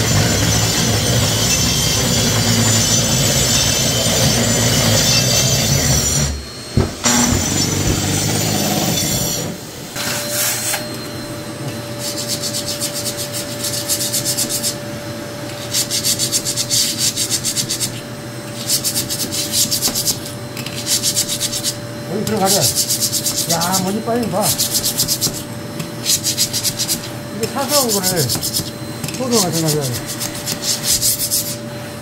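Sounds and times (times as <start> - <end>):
hand scraper rasping on floor: 0.0 - 10.8, 11.9 - 14.8, 15.5 - 31.6
vacuum whining: 0.0 - 16.6, 17.9 - 20.9, 21.6 - 32.0
grinder grinding floor: 0.0 - 32.0.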